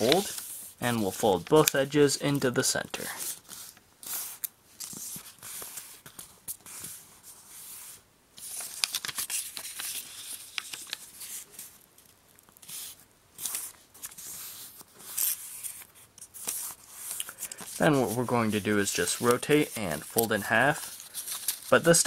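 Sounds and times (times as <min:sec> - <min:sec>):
paper being folded: 0:00.0 - 0:01.9, 0:02.7 - 0:22.0.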